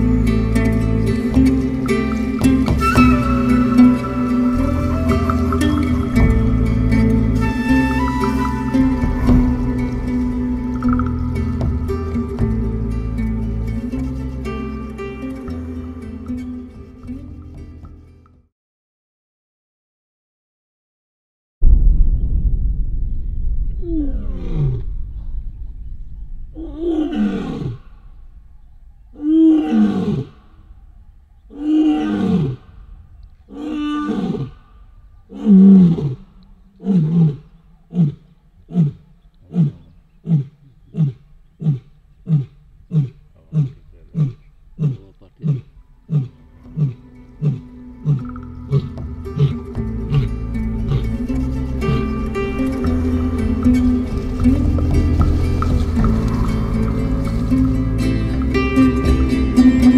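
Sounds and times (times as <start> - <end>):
lion roaring and grunting: 23.8 - 25.3, 26.5 - 58.8.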